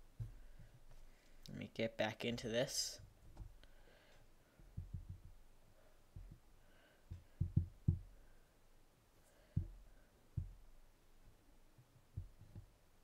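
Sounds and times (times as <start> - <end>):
soft low handling thumps: 0.0 - 1.0, 4.6 - 5.4, 6.1 - 6.5, 7.1 - 8.2, 9.5 - 10.8, 11.8 - 12.8.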